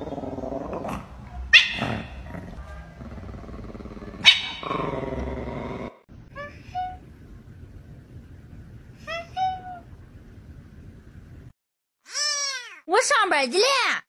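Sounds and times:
animal yelping and growling: 0.0s - 6.0s.

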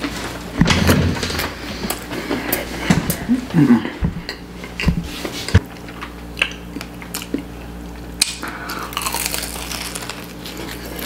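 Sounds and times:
pastry crunching in mouth: 6.3s - 11.0s
chewing: 6.4s - 11.0s.

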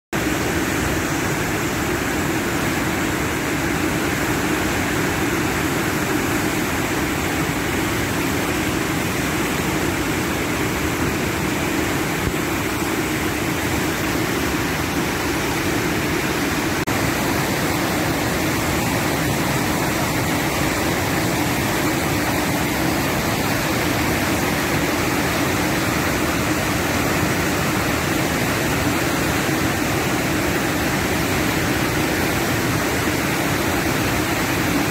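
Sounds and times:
whitewater rushing through gorge: 0.2s - 34.9s.

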